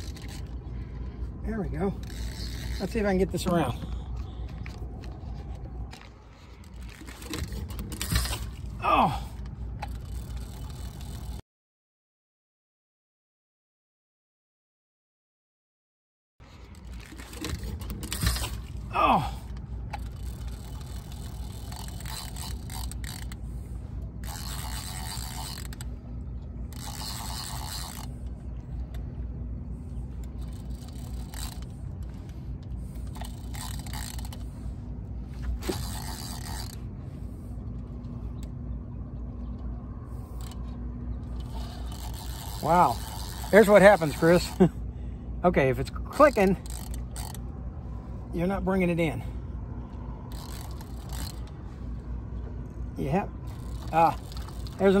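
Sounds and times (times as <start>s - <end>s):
fishing reel drag clicking: 0.0s - 0.7s, 1.8s - 8.7s, 9.4s - 11.4s, 16.5s - 18.8s, 19.5s - 29.2s, 29.8s - 37.0s, 40.1s - 44.6s, 46.2s - 47.5s, 49.9s - 52.0s, 53.4s - 55.0s.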